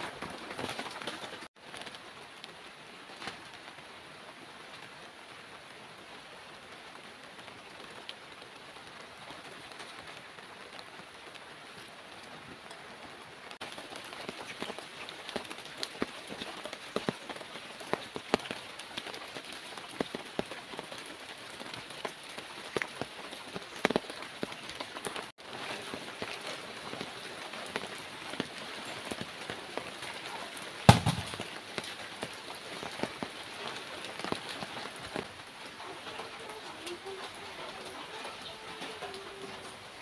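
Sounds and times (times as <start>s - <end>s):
steady rain: 0.0s - 40.0s
loud thud: 30.9s - 31.4s.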